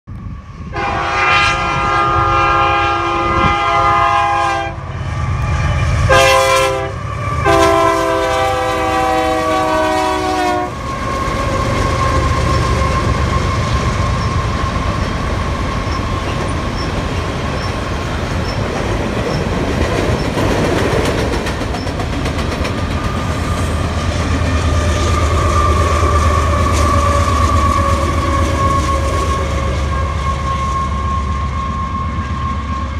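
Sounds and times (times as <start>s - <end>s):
locomotive air horn blasts: 0.7s - 10.8s, 23.8s - 32.9s
train wheels clickety-clack: 10.7s - 32.9s.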